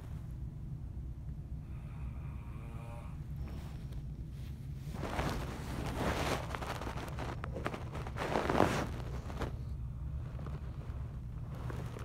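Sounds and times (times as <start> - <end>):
low hum: 0.0 - 12.0
person snoring: 1.7 - 3.2.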